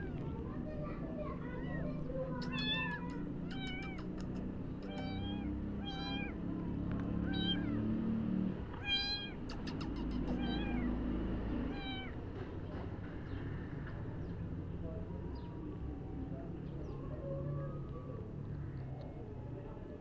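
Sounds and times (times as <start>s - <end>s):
kitten mewing: 1.8s - 6.4s, 7.2s - 7.9s, 8.7s - 11.0s, 11.7s - 12.2s.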